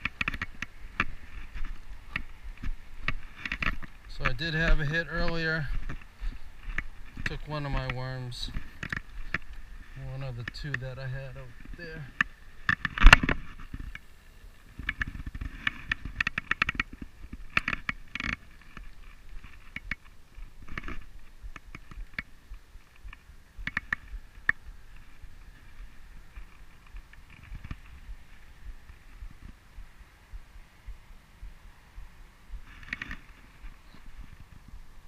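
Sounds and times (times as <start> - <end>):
low rumble: 20.3 - 32.7.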